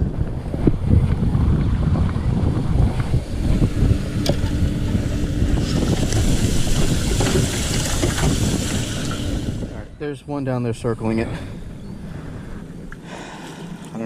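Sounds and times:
wind buffeting microphone: 0.0 - 14.0
water churning in tank: 2.6 - 9.8.

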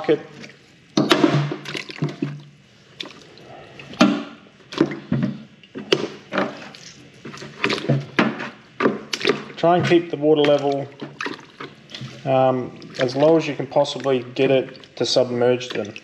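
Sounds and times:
abalone clunking into bucket: 0.3 - 3.2, 3.9 - 16.0
splashes in water: 1.6 - 3.4, 9.1 - 16.0.

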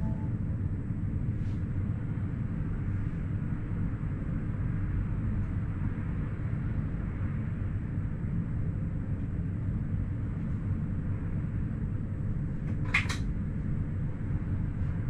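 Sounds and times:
railcar rumbling: 0.0 - 0.5.

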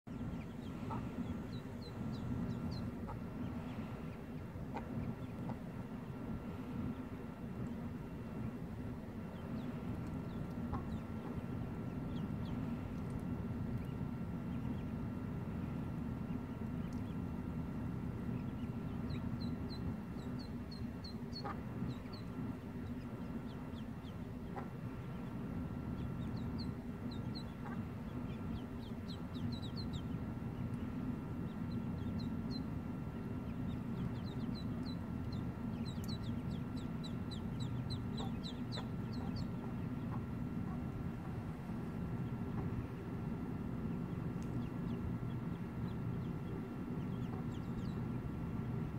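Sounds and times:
ducklings peeping: 0.1 - 48.9
low background noise: 0.1 - 48.9.

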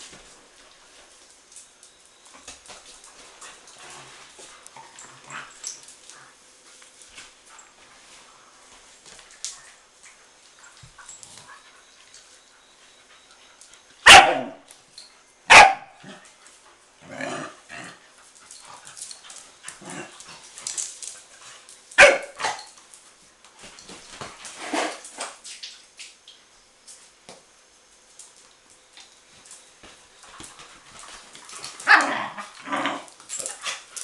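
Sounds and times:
dogs scuffling: 0.0 - 14.0, 17.8 - 26.2, 27.9 - 34.0
young dogs barking: 14.0 - 14.6, 15.5 - 16.2, 22.0 - 22.6.

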